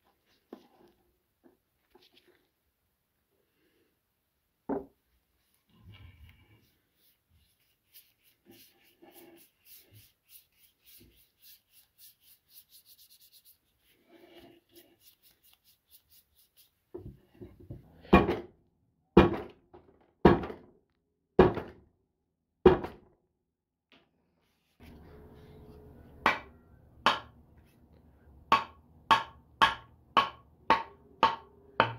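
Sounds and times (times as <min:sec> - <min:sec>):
brush strokes on wood: 0:05.3 - 0:16.9
gloved hand rubbing wood: 0:06.4 - 0:16.9.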